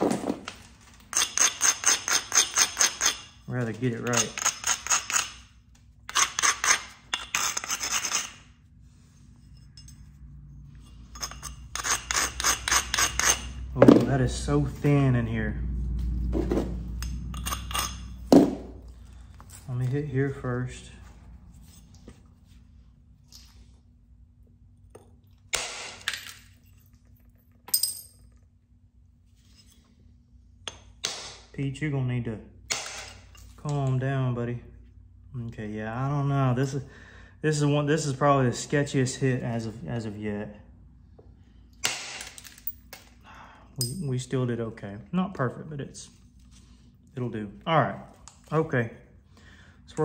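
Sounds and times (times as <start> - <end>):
stone scraping stone blade edge: 1.1 - 3.4, 4.0 - 5.5, 6.1 - 8.6, 10.7 - 13.7, 16.5 - 18.5.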